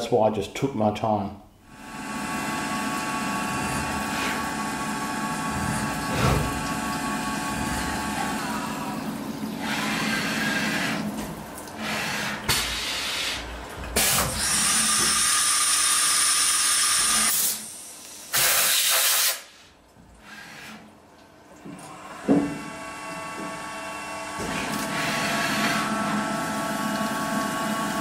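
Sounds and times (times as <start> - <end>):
milling machine spindle whine: 1.8 - 12.4, 21.9 - 28.0
coolant spraying: 14.0 - 19.6
loud hissing blasts: 18.3 - 19.5.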